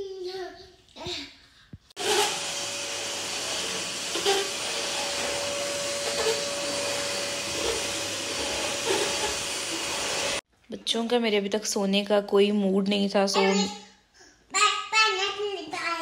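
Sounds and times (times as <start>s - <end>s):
vacuum cleaner running: 2.0s - 10.4s.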